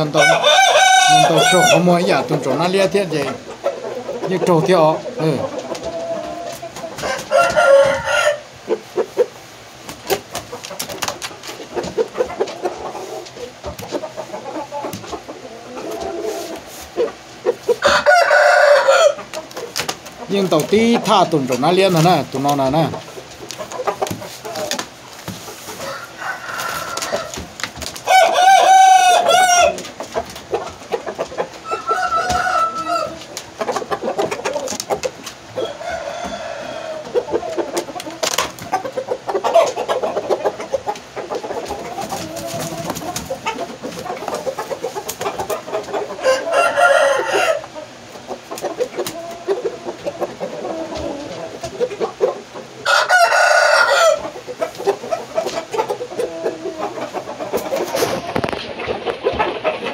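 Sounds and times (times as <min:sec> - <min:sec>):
rooster crowing: 0:00.0 - 0:02.2, 0:07.0 - 0:08.5, 0:17.8 - 0:19.3, 0:25.8 - 0:27.4, 0:28.0 - 0:29.8, 0:31.6 - 0:33.2, 0:35.5 - 0:37.2, 0:46.2 - 0:47.7, 0:52.8 - 0:54.3
chicken clucking: 0:00.0 - 0:59.9.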